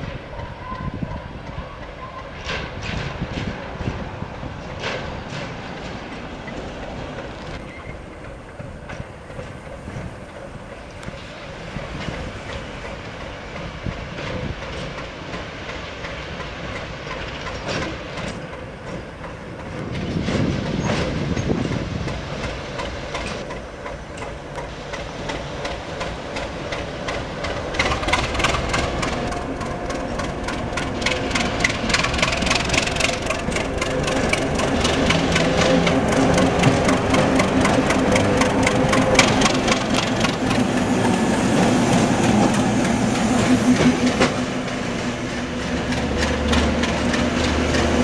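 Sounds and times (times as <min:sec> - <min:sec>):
diesel locomotive engine running: 0:00.0 - 0:48.0
wheels clattering over rail joints: 0:00.0 - 0:48.0
rapid clicking: 0:22.0 - 0:43.0.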